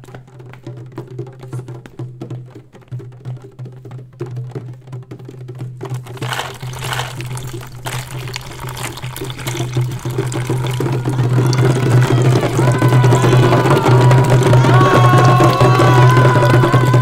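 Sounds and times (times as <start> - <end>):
running water: 5.9 - 17.0.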